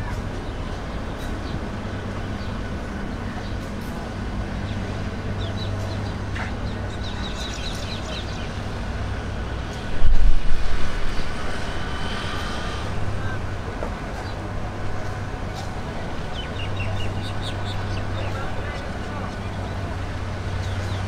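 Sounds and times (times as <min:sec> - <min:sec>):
jet engines humming: 0:00.0 - 0:21.0
birds chirping: 0:04.4 - 0:09.0, 0:14.1 - 0:21.0.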